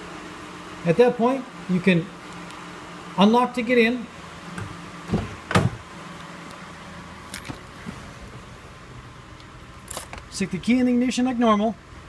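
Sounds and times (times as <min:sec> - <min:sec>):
thumps of car doors: 0:04.5 - 0:05.9.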